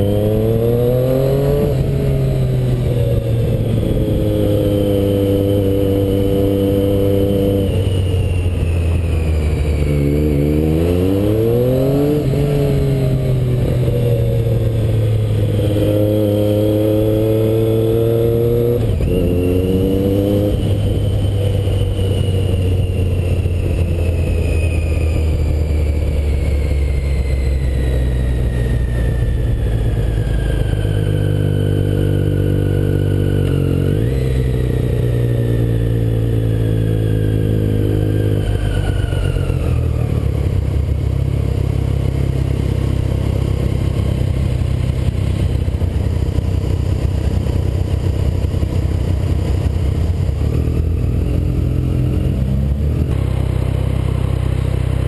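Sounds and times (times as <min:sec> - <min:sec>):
high whine falling in pitch: 0:00.0 - 0:41.0
motorcycle engine: 0:00.0 - 0:55.0.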